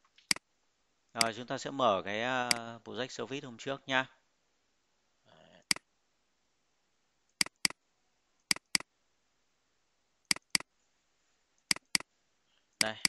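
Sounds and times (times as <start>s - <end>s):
computer mouse double-clicking: 7.4s - 7.8s, 8.5s - 8.9s, 10.3s - 10.7s, 11.7s - 12.0s.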